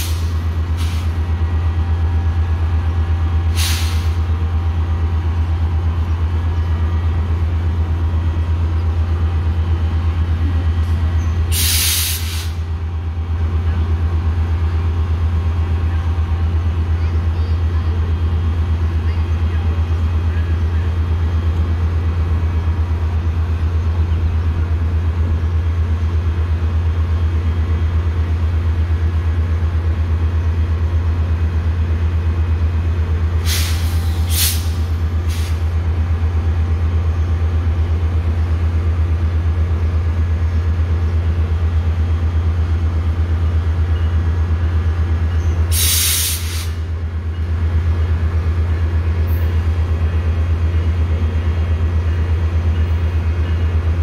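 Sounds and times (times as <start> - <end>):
air brakes hissing: 0.0 - 1.2, 3.5 - 4.3, 11.5 - 12.6, 33.4 - 35.7, 45.6 - 46.9
diesel train idling: 0.0 - 54.0.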